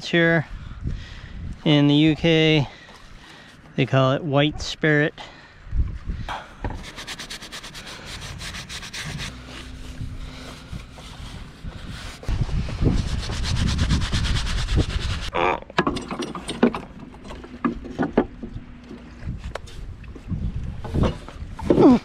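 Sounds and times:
rag rubbing on fibreglass: 0:06.7 - 0:15.3.

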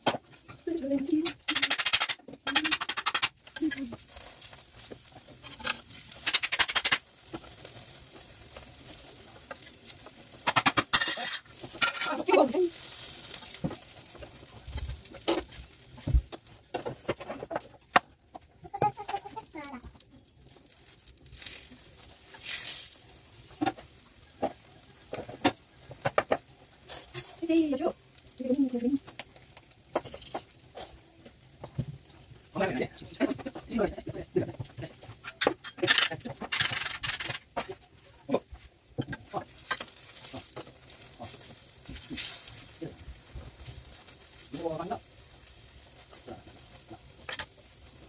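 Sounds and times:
oil sizzling on griddle: 0:00.0 - 0:48.0
dough hissing on hot pan: 0:00.8 - 0:16.7, 0:18.7 - 0:35.3, 0:35.9 - 0:48.0
kitchenware clicks and knocks: 0:01.2 - 0:03.3.

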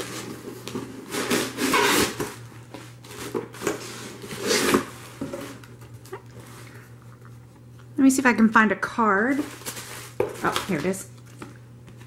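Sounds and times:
packing paper rustling: 0:00.0 - 0:06.8, 0:09.2 - 0:12.0.

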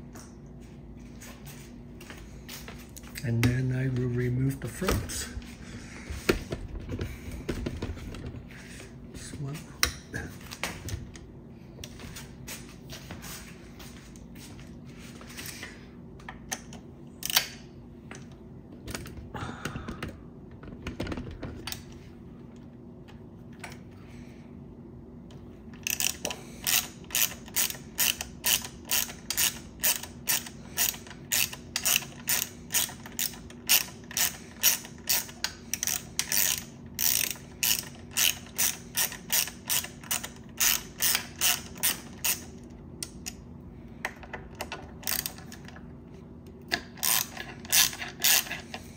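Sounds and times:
ratcheting driver clicking: 0:25.8 - 0:43.4, 0:44.0 - 0:45.8, 0:46.7 - 0:48.9.

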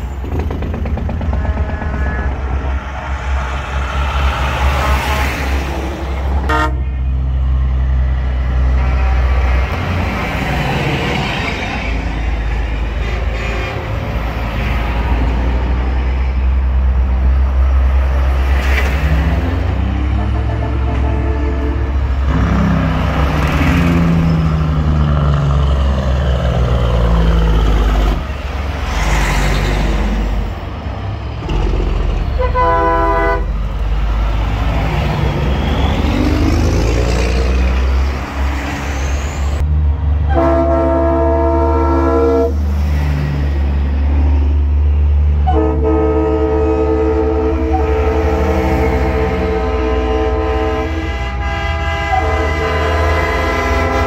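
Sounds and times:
diesel truck engines rumbling: 0:00.0 - 0:54.0
air horn blasts: 0:01.3 - 0:02.8, 0:06.4 - 0:07.1, 0:13.0 - 0:14.0, 0:20.1 - 0:22.6, 0:32.4 - 0:33.6, 0:40.3 - 0:42.6, 0:45.4 - 0:54.0.

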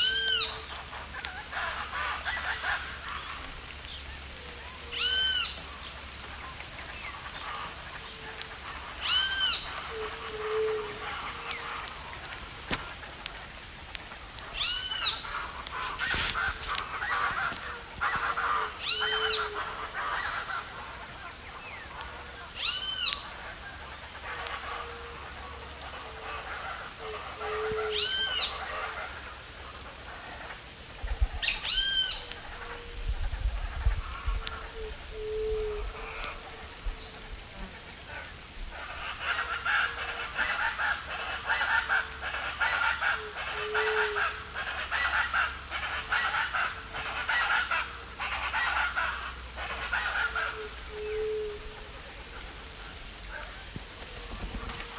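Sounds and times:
high arching bird call: 0:00.0 - 0:06.3, 0:14.4 - 0:20.7, 0:26.6 - 0:29.1, 0:31.4 - 0:32.9
crackling noise: 0:00.0 - 0:54.9.

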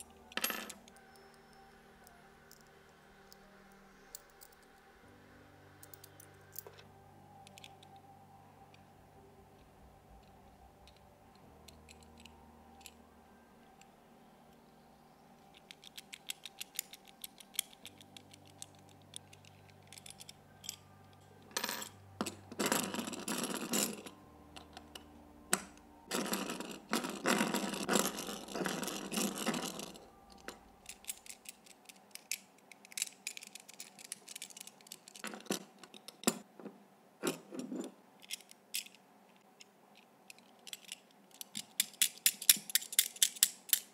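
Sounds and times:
key clicking in padlock: 0:15.5 - 0:20.8, 0:30.3 - 0:36.3, 0:40.3 - 0:43.9.

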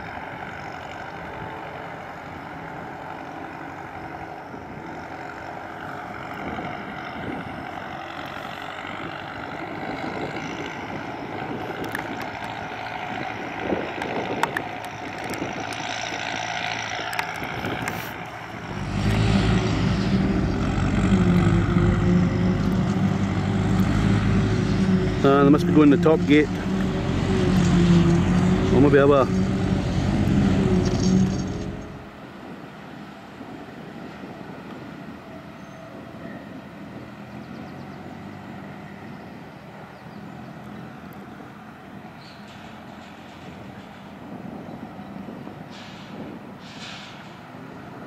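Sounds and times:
tractor engine running: 0:00.0 - 0:32.6
distant engine drone: 0:00.0 - 0:48.0.

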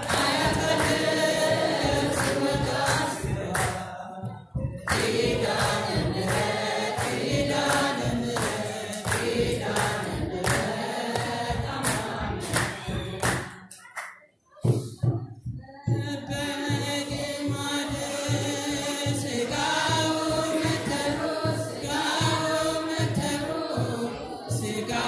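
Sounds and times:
hand claps: 0:00.0 - 0:04.0, 0:04.7 - 0:15.0
choir singing a hymn: 0:00.0 - 0:13.6, 0:16.2 - 0:25.0.

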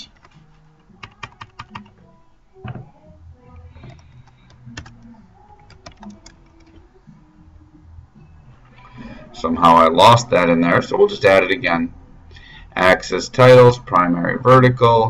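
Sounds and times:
keyboard typing: 0:01.0 - 0:02.0, 0:03.8 - 0:06.8.

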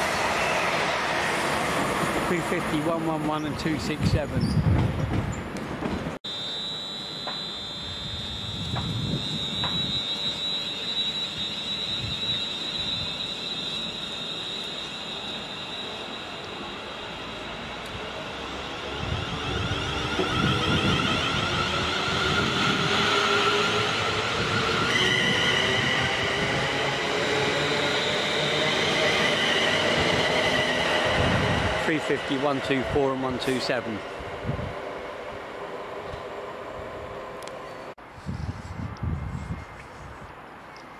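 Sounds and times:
wheels rushing on rail: 0:00.0 - 0:03.5, 0:04.6 - 0:40.9
electric train whine: 0:06.3 - 0:38.0.

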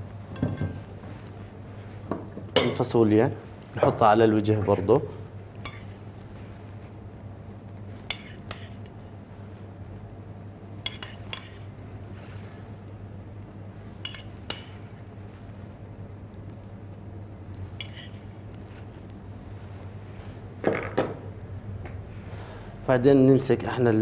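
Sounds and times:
metal spoon clinking on dish: 0:10.9 - 0:11.7, 0:14.0 - 0:14.9.

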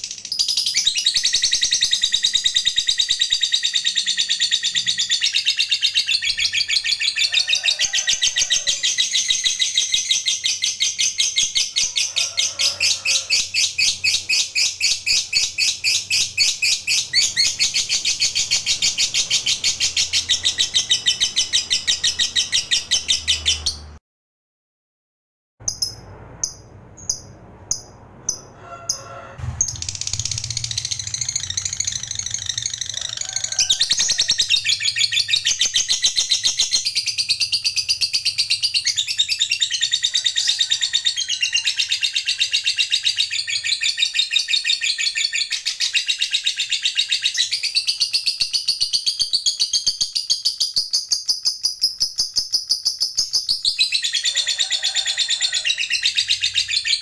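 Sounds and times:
bird rapid chattering trill: 0:00.0 - 0:12.0, 0:12.8 - 0:23.8, 0:29.4 - 0:40.1.

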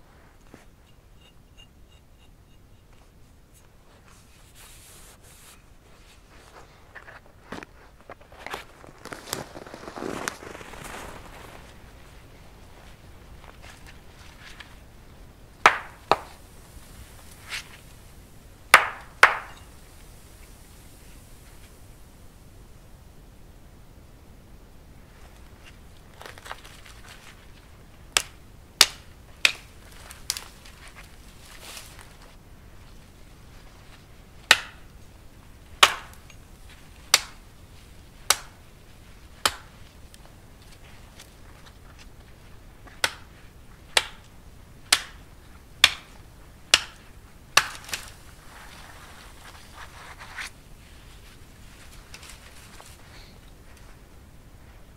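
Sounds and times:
axe chopping tree trunk: 0:15.7 - 0:16.4, 0:18.7 - 0:19.6, 0:28.2 - 0:29.7, 0:34.5 - 0:34.9, 0:35.8 - 0:36.2, 0:37.1 - 0:37.4, 0:38.3 - 0:38.6, 0:39.4 - 0:39.7, 0:43.0 - 0:43.3, 0:44.0 - 0:44.3, 0:44.9 - 0:45.2, 0:45.8 - 0:48.1
sharp knocks on tree trunk: 0:15.7 - 0:16.4, 0:18.7 - 0:19.6.

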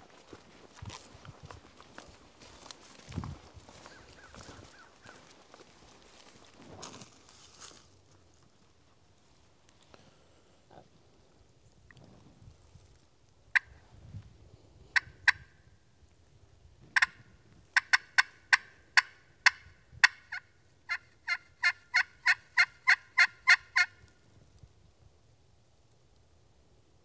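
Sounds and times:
turkey call yelps: 0:03.8 - 0:05.3, 0:15.0 - 0:15.5, 0:17.0 - 0:24.1.

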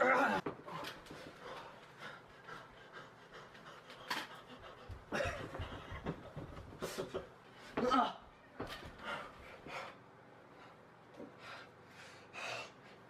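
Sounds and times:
people panting and grunting: 0:00.0 - 0:10.0.

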